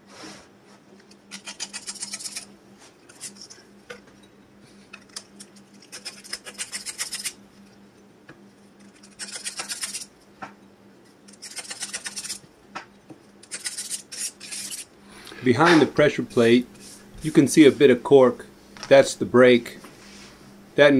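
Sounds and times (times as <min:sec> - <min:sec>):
pad scraping metal disc: 0:01.0 - 0:07.4, 0:08.4 - 0:12.5, 0:13.4 - 0:14.9.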